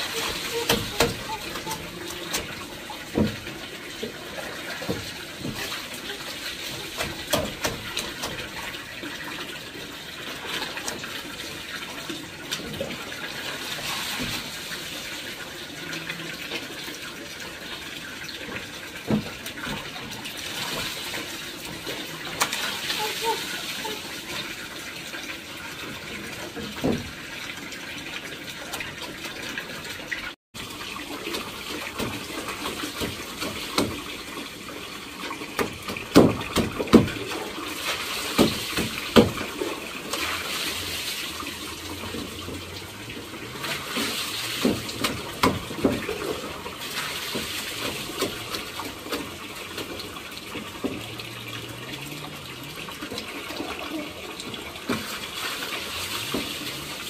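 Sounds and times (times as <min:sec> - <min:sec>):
water running and splashing: 0:00.0 - 0:57.0
knocks and clatter: 0:06.8 - 0:08.6.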